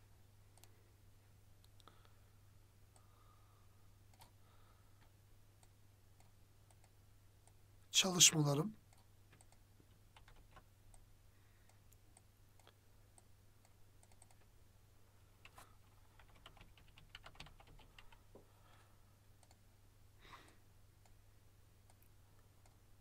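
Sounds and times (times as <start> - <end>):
low steady hum: 0.0 - 23.0
mouse clicks: 0.6 - 0.8, 11.7 - 14.4, 19.4 - 19.6
keyboard typing: 8.9 - 11.0, 14.0 - 14.5, 15.4 - 18.3.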